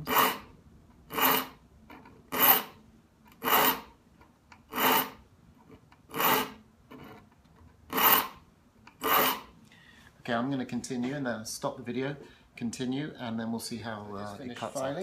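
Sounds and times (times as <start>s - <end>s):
file rasping saw teeth: 0.0s - 0.5s, 1.1s - 1.6s, 2.3s - 4.0s, 4.6s - 5.2s, 6.1s - 7.2s, 7.9s - 9.5s.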